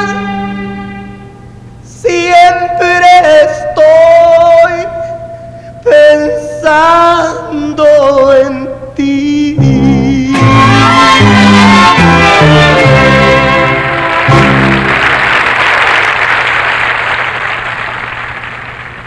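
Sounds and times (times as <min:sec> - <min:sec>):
orchestra with brass: 0:00.0 - 0:01.4, 0:09.6 - 0:15.6
man singing sustained notes: 0:00.0 - 0:12.0
light accompaniment: 0:09.4 - 0:15.6.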